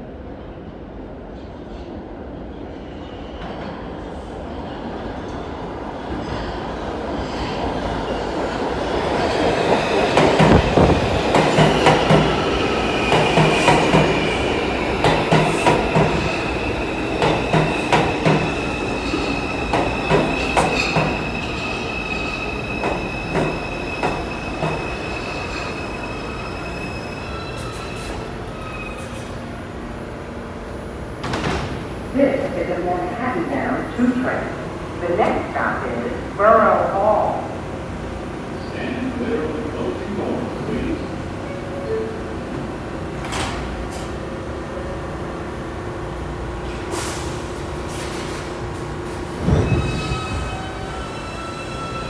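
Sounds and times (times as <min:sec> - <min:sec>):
high wheel squeal: 0:18.6 - 0:29.3.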